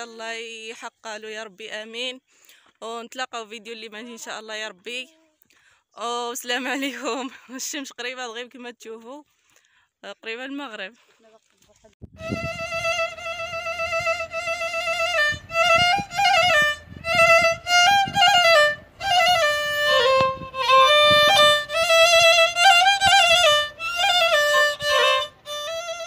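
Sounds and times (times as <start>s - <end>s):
solo violin melody: 12.1s - 26.0s.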